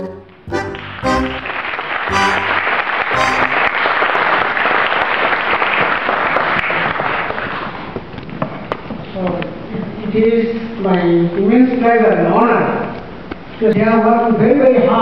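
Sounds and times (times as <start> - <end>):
short musical note: 0.0 - 4.2
audience applauding: 0.0 - 6.8.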